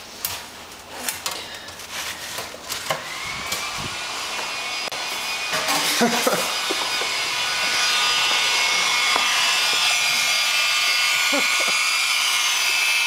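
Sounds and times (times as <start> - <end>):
hair dryer blowing: 2.8 - 13.0.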